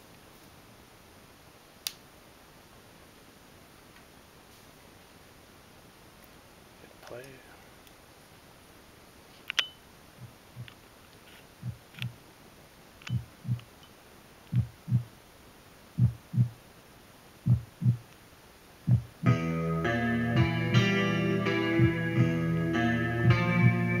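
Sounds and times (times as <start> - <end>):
heartbeat-like double thump: 13.1 - 13.6, 14.5 - 15.1, 16.0 - 16.6, 17.5 - 18.0, 18.9 - 19.1.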